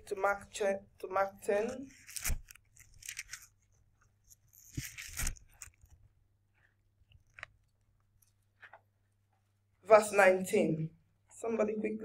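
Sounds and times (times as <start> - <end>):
pages being turned: 1.8 - 6.0.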